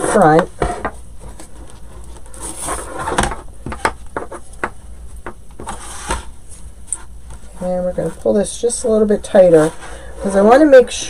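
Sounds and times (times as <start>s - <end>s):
rustling scrapes: 0.0s - 3.4s, 5.6s - 8.6s, 9.2s - 10.8s.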